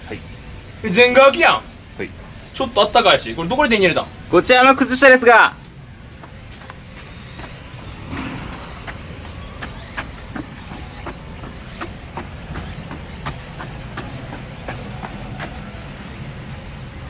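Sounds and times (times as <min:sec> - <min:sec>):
footsteps on hard ground: 0:05.6 - 0:16.7.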